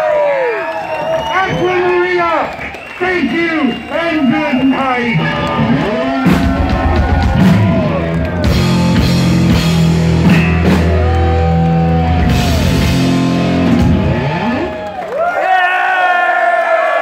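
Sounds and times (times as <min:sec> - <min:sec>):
distorted electric guitar: 0:04.6 - 0:15.0
drum hits: 0:06.1 - 0:11.3.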